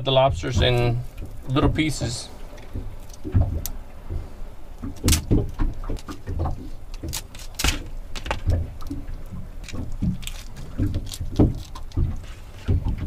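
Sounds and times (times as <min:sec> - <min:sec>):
low knocks and rustling: 0:00.0 - 0:13.0
knife cracking through shell: 0:07.0 - 0:08.4, 0:09.6 - 0:11.9.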